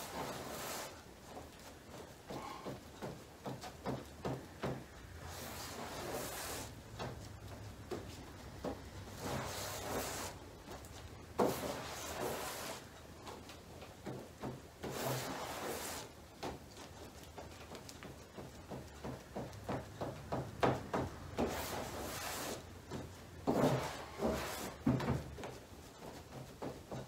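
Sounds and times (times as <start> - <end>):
plastic spreader scraping filler: 0.0 - 1.0, 4.6 - 7.2, 8.6 - 10.8, 11.4 - 12.9, 14.8 - 16.2, 21.0 - 25.4.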